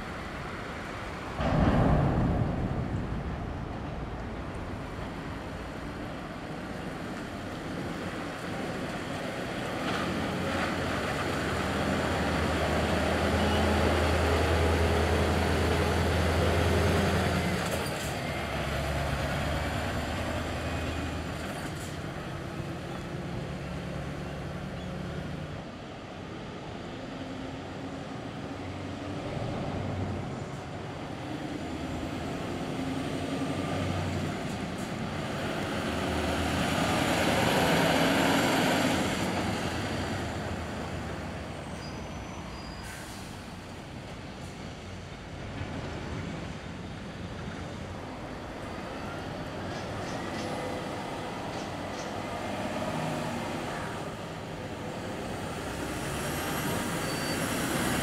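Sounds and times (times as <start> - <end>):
trucks driving past: 0.0 - 58.0
tyre and road noise: 0.0 - 58.0.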